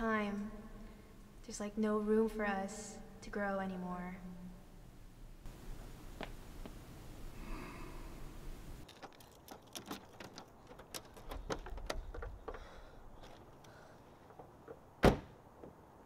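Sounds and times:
faint footsteps: 8.8s - 15.0s
car door unlatching and opening: 14.2s - 15.8s.

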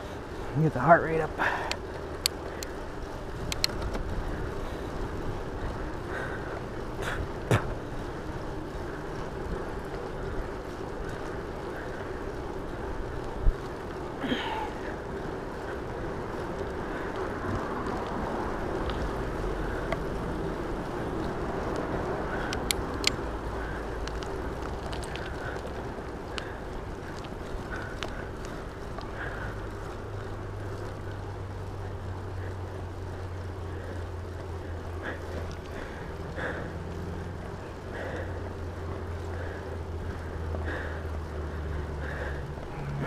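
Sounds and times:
bicycle tyre noise: 0.0s - 43.0s
bike clicks and knocks: 1.5s - 31.2s, 34.9s - 37.1s.

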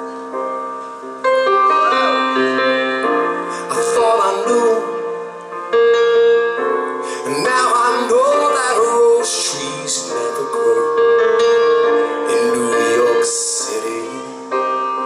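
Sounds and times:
piano playing sustained chords: 0.0s - 15.0s
man singing: 3.5s - 5.2s, 7.1s - 11.2s, 12.1s - 15.0s.

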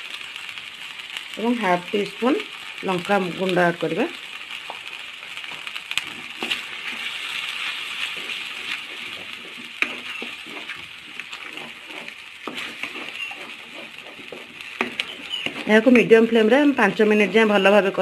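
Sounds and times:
paste sizzling in hot oil: 0.0s - 18.0s
wooden spatula scraping: 5.4s - 18.0s.

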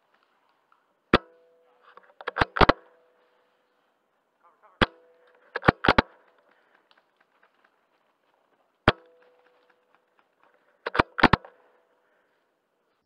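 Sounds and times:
airsoft rifle shot: 1.1s - 1.6s, 2.2s - 3.1s, 4.8s - 6.4s, 8.8s - 9.7s, 10.8s - 11.8s.

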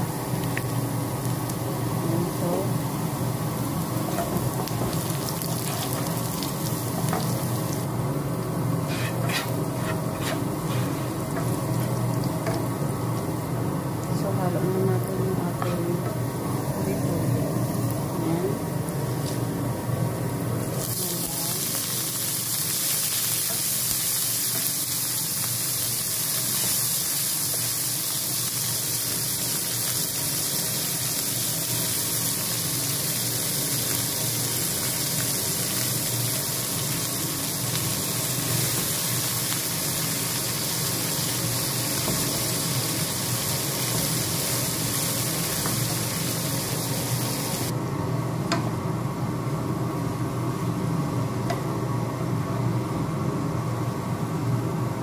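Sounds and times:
vegetables sizzling in hot oil: 0.0s - 47.8s.

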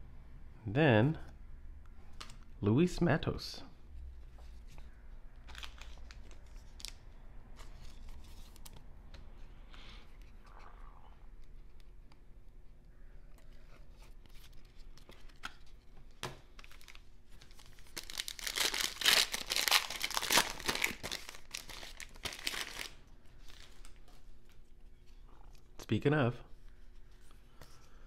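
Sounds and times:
foil wrapper tearing and crinkling: 16.6s - 23.0s.

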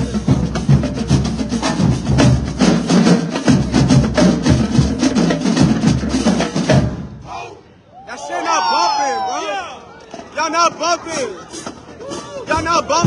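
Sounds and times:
bass drums: 0.0s - 7.2s.

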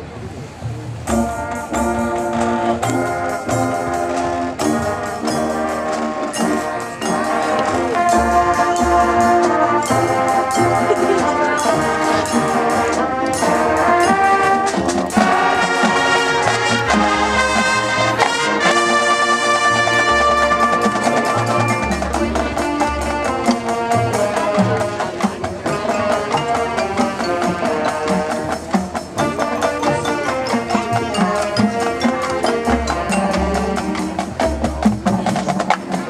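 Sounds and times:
drumline percussion: 0.4s - 36.0s
brass sustained chords: 1.1s - 28.6s.

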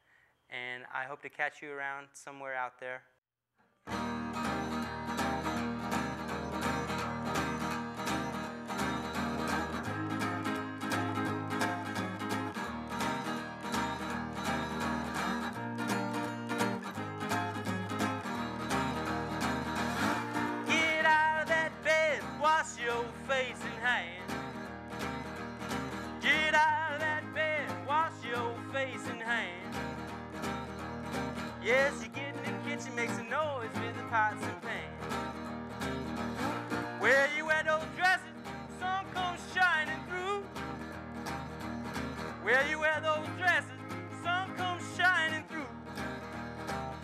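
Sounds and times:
acoustic guitar strumming: 3.8s - 47.0s
man singing wordless vocal: 20.6s - 24.4s, 26.1s - 29.8s, 31.6s - 35.1s, 37.0s - 40.5s, 42.4s - 45.8s.

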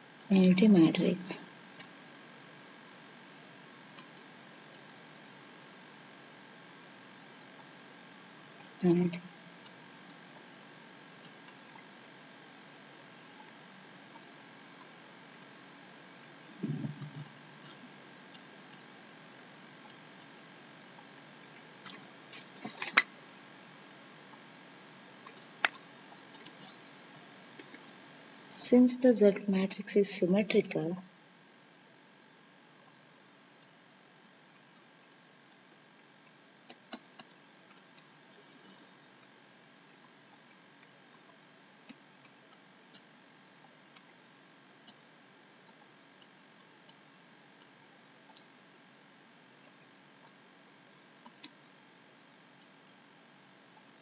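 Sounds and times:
room hiss: 0.0s - 54.0s.

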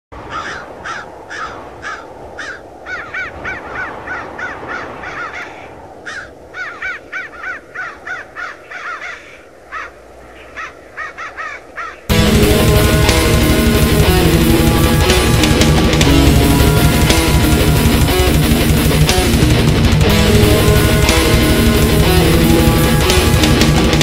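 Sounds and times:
crows cawing: 0.2s - 12.1s
distorted heavy metal guitar music: 12.1s - 24.0s
low rushing noise: 12.1s - 24.0s.

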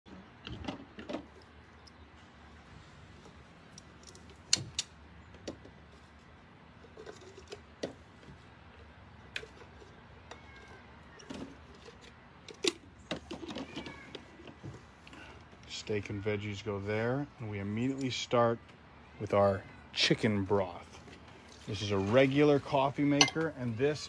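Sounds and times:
glass carafe clinking and knocking: 23.2s - 23.5s.

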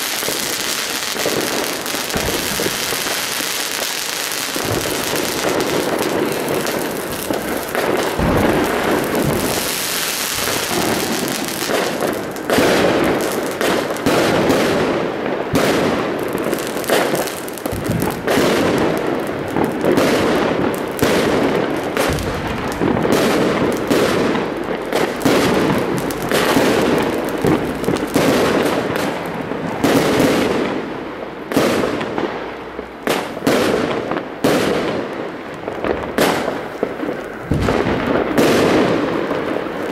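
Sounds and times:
rockets rising and bursting: 0.0s - 29.3s
firework bangs and crackles: 0.0s - 39.9s.

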